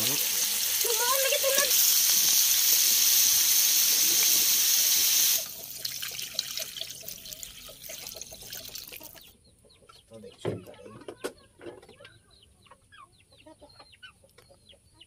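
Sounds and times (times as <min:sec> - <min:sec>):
shellfish sizzling in a wok: 0:00.0 - 0:08.4.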